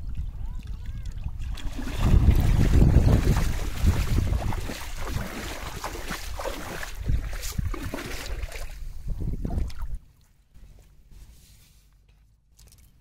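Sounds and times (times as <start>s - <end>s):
wind rumbling on microphone: 0.0s - 10.1s
feet splashing in shallow water: 0.3s - 10.0s.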